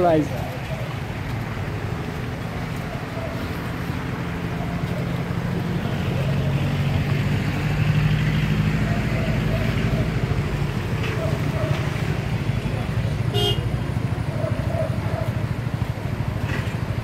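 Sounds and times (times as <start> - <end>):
road traffic passing: 0.0 - 17.0.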